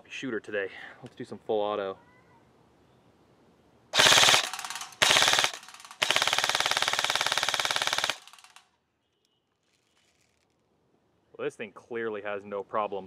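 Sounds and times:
airsoft rifle firing bursts: 4.0s - 8.6s.

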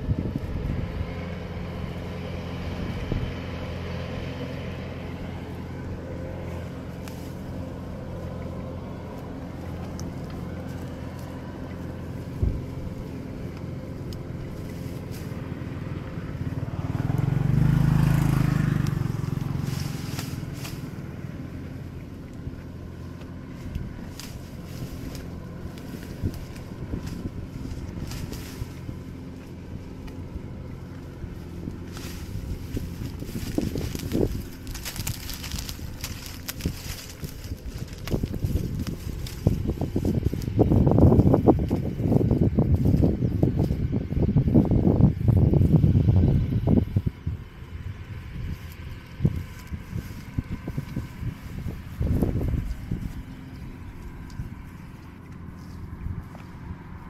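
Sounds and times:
motor engine running: 0.0s - 57.0s
vehicle passing close: 0.0s - 57.0s
faint crackles: 6.4s - 43.8s.

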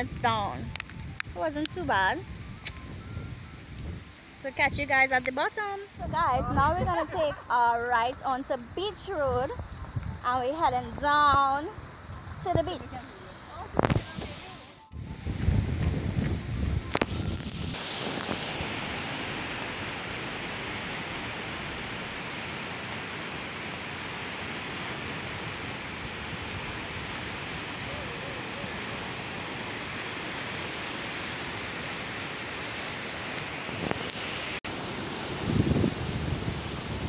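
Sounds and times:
wind buffeting microphone: 0.0s - 19.4s, 34.8s - 37.0s
ocean surf on rocky beach: 16.4s - 37.0s.

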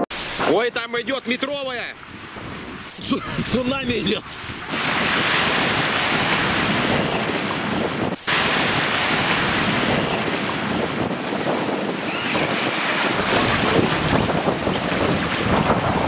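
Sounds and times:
waves splashing against boat: 0.2s - 16.0s
wind buffeting microphone: 2.0s - 16.0s.

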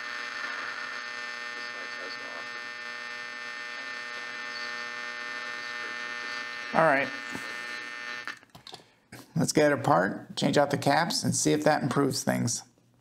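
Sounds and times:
radio speaker buzzing hum: 0.0s - 8.4s.

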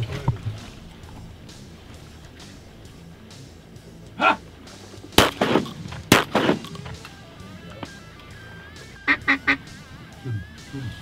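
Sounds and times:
shotgun shots with echo: 5.2s - 6.8s
short honk: 9.1s - 9.6s.

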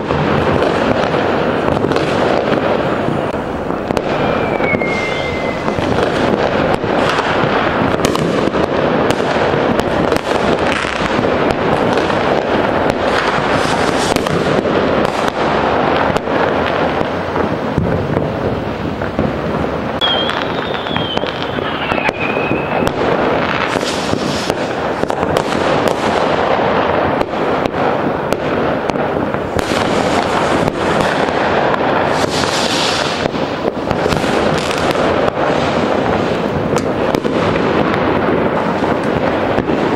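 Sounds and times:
fireworks banging and crackling: 0.0s - 39.9s
falling firework whistle: 3.9s - 7.7s, 19.9s - 24.6s, 32.1s - 33.3s.

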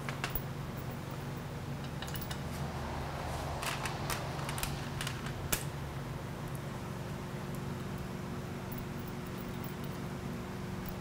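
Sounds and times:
small metal hardware clinking: 0.1s - 2.4s
low hum: 0.7s - 11.0s.

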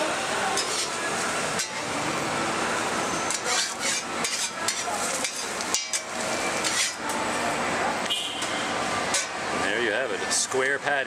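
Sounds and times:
burger sizzling on a griddle: 0.3s - 7.4s
metal spatula scraping and tapping: 0.6s - 1.0s, 3.3s - 7.1s, 9.1s - 9.4s.

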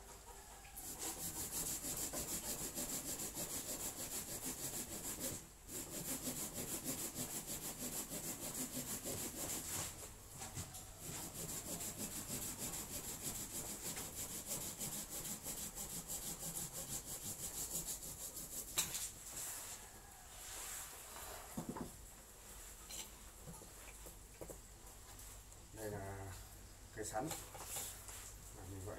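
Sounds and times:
hand saw cutting branch: 0.9s - 9.8s, 11.0s - 19.0s.

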